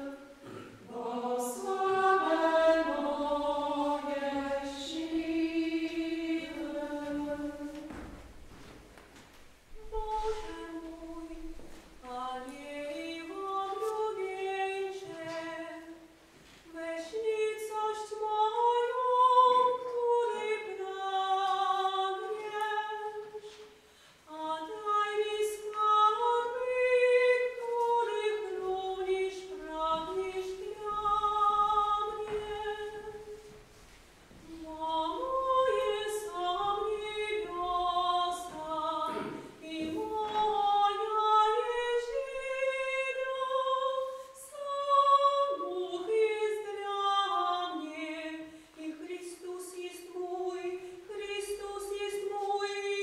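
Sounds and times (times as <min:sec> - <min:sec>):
woman singing slow melody: 0:34.5 - 0:53.0.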